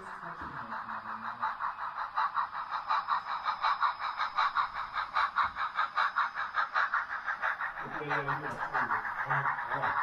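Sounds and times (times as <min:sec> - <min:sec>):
model train running: 0:00.0 - 0:10.0.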